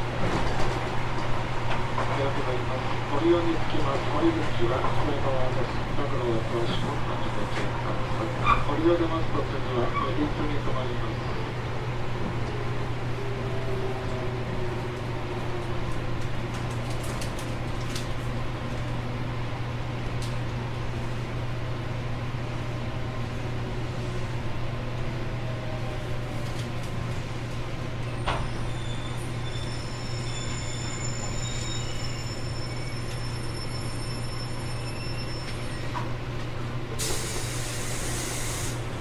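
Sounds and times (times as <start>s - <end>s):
rail and wheel noise: 0.0s - 39.0s
train interior low hum: 0.0s - 39.0s
sharp air hiss: 37.0s - 38.9s.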